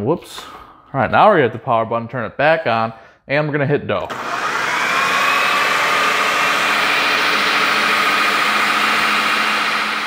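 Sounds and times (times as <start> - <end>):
blender motor whining: 4.1 - 10.0.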